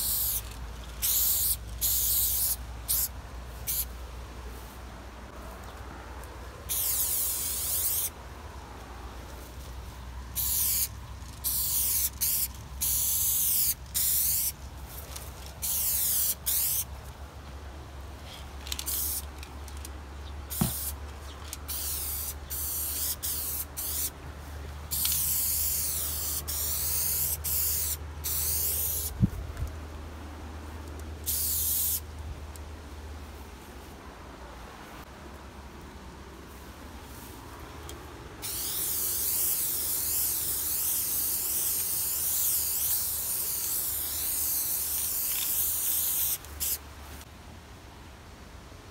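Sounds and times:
aerosol spray can hissing: 0.0s - 3.1s, 6.7s - 8.1s, 10.4s - 14.6s, 15.6s - 16.8s, 20.5s - 21.0s, 21.7s - 24.1s, 24.9s - 29.1s, 31.3s - 32.0s, 38.4s - 46.8s.

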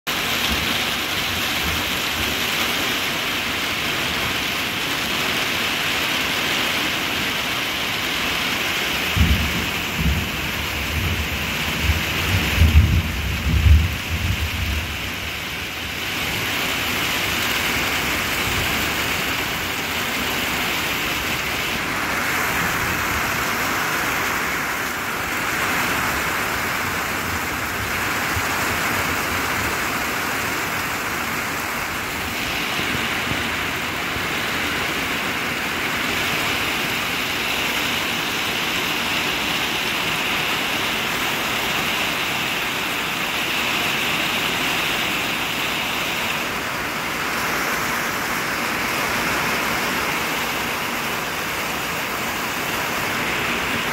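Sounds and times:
heavy rain hissing: 0.1s - 53.9s
low thunder rumbling: 9.0s - 17.0s.

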